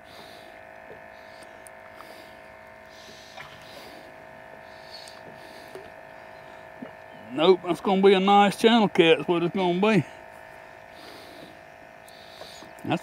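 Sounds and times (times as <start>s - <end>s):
electric hum: 0.0s - 13.0s
faint clicks: 5.0s - 5.9s.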